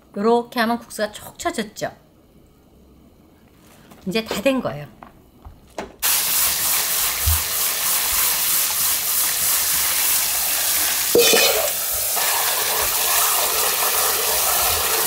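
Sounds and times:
tap water running: 6.0s - 15.0s.

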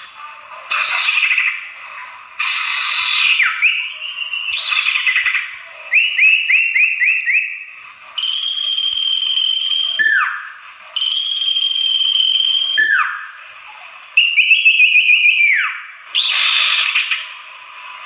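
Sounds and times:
bird chattering and whistling: 0.7s - 1.8s, 2.4s - 8.4s, 14.2s - 17.4s.

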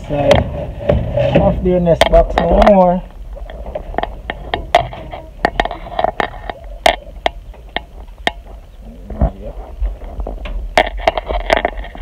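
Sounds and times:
microphone handling rumble: 0.0s - 12.0s
clicks and taps on wire mesh: 2.0s - 8.7s.

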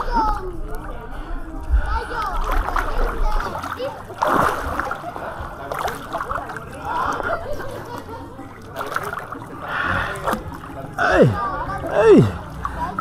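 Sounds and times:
water splashing in pool: 1.9s - 13.0s.

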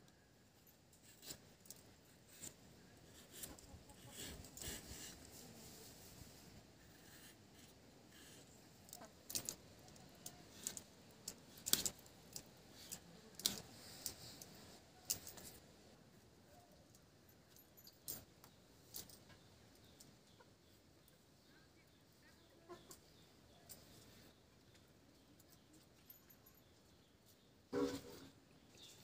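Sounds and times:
glass bangles clinking: 25.8s - 26.8s.

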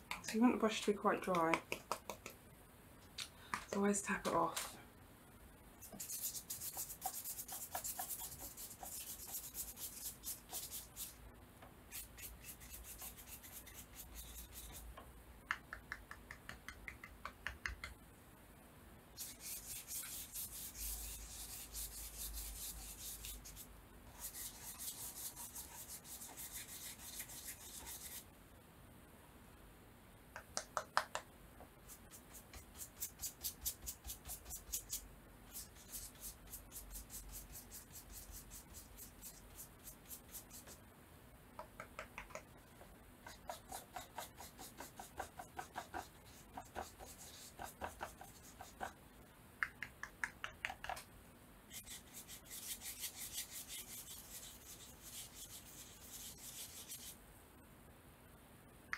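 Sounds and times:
stiff brush scrubbing paper: 5.8s - 11.2s, 11.9s - 14.9s, 19.2s - 28.2s, 31.8s - 40.8s, 43.2s - 49.0s, 51.7s - 57.2s.

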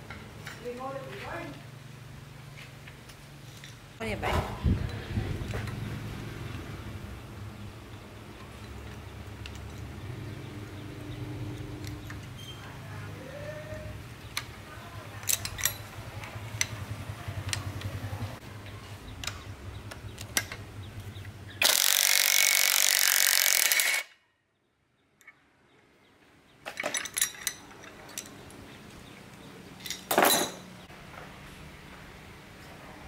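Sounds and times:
light metal clinks: 15.1s - 16.9s, 26.6s - 28.7s
power tool whining: 21.6s - 24.1s.

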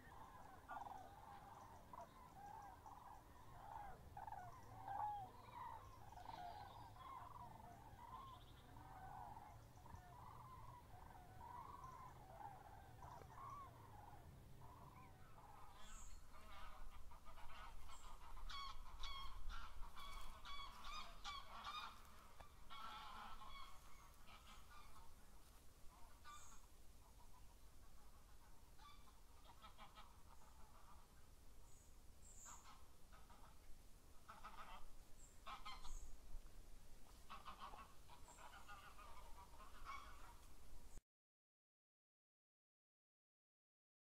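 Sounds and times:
bird calls: 0.0s - 36.2s, 37.3s - 40.4s.

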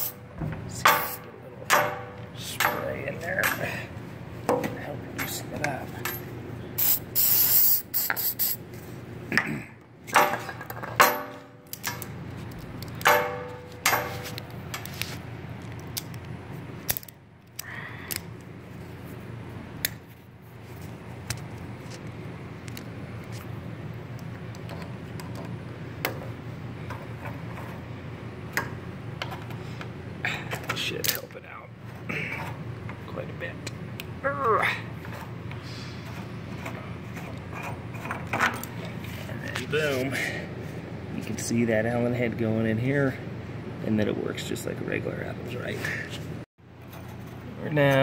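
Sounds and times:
metal tools clicking and clinking: 0.8s - 3.9s, 4.5s - 6.4s
aerosol spray hiss: 6.8s - 8.6s.

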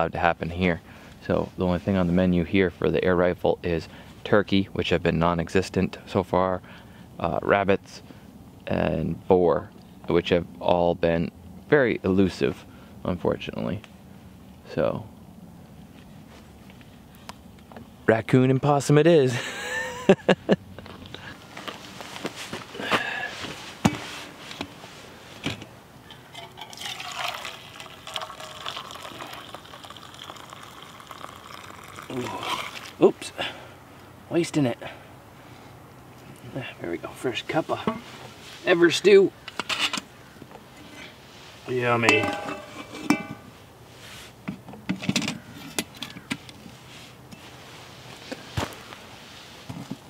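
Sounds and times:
broth pouring into metal cup: 26.1s - 33.0s
metal pot lid clanking: 42.1s - 43.5s
ringing metal clang: 42.1s - 43.5s.

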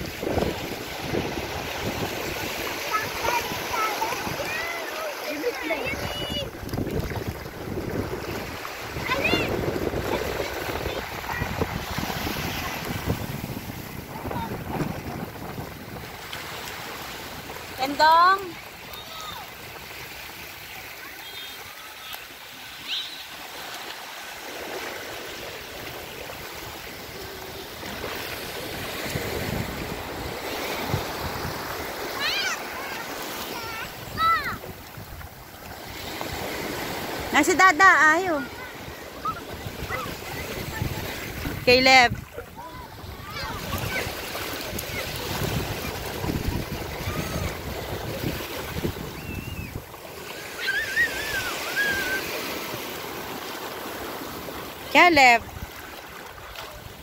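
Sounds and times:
wind buffeting microphone: 0.0s - 4.8s, 5.4s - 17.8s, 25.4s - 32.1s, 33.6s - 50.1s
waves washing onto beach: 0.0s - 57.0s.

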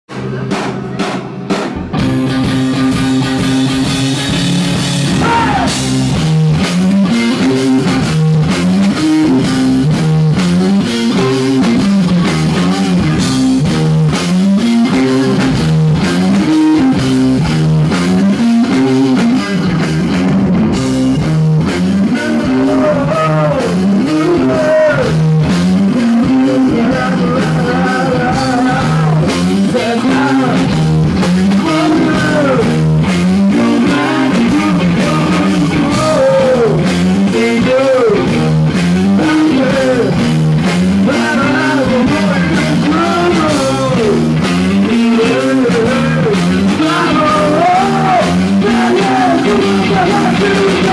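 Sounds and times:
live rock band playing: 0.1s - 50.9s.

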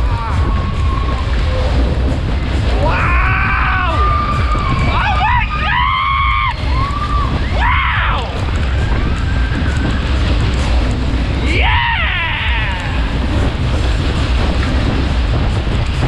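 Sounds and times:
riders screaming: 0.0s - 1.6s, 2.7s - 10.3s, 11.4s - 13.4s
wind rumble on microphone: 0.0s - 16.0s.

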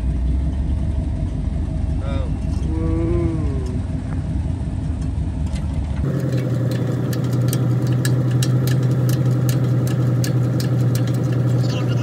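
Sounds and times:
truck engine idling: 0.0s - 12.0s
light irregular ticking: 5.0s - 12.0s.

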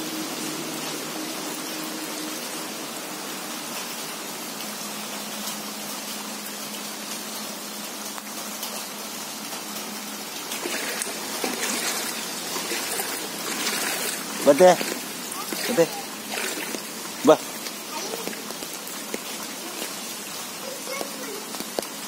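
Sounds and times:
heavy rain on water: 0.0s - 22.0s.

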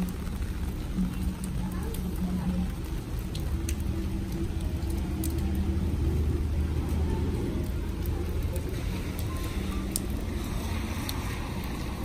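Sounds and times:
drops ticking on an umbrella: 0.0s - 12.0s
rain on wet paving: 0.0s - 12.0s.

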